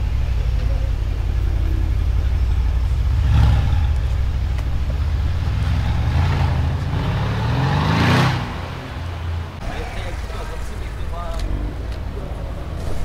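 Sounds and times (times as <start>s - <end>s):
car engine accelerating: 0.0s - 13.0s.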